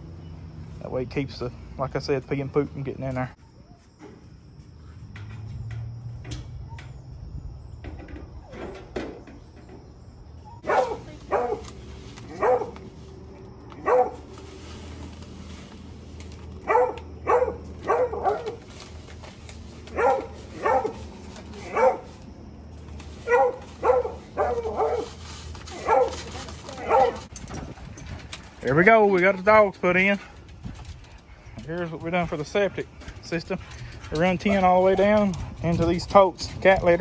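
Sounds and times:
hound barking: 0:10.6 - 0:13.0, 0:13.7 - 0:14.3, 0:16.6 - 0:18.7, 0:19.8 - 0:22.2, 0:23.2 - 0:27.3.

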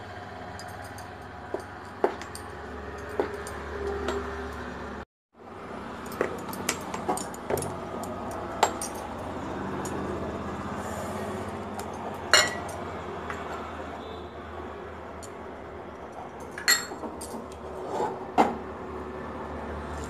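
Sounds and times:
ringing metal clink: 0:06.0 - 0:09.2, 0:11.8 - 0:12.8
utensils clinking on a steel pot: 0:06.0 - 0:09.2, 0:11.8 - 0:13.6, 0:16.4 - 0:18.5.

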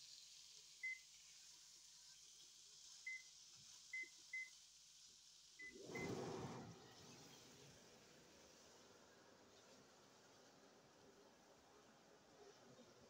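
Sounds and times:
rush of noise: 0:05.8 - 0:06.8.

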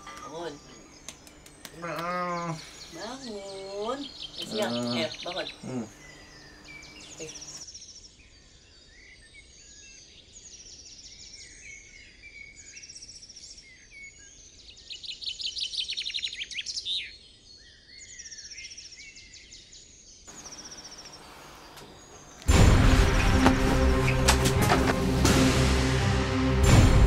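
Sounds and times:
birds chirping and singing: 0:00.0 - 0:25.2
loud music: 0:22.5 - 0:27.0.

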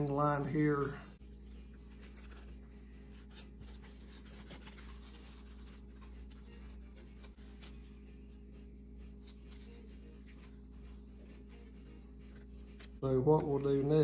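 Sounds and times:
tape rubbing and crinkling: 0:01.3 - 0:07.8.

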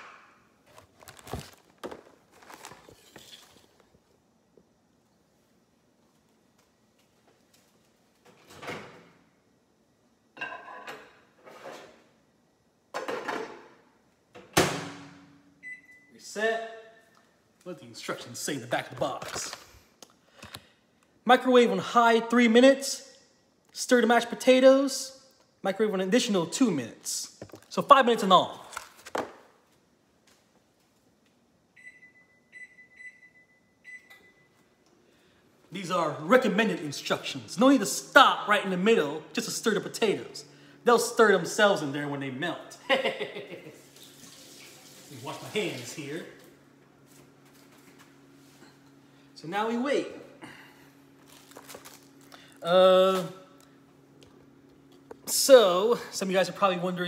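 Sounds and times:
microwave keypad beeping: 0:31.8 - 0:34.5.

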